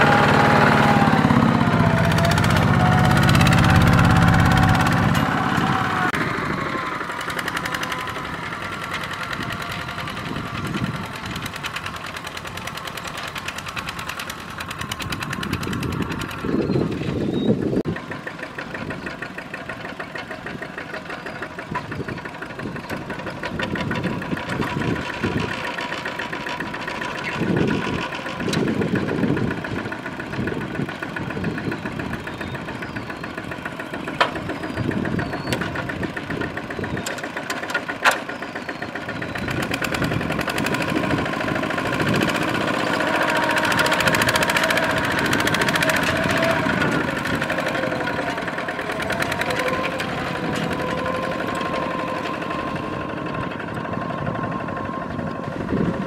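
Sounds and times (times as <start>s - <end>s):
diesel engine chugging: 0.0s - 56.0s.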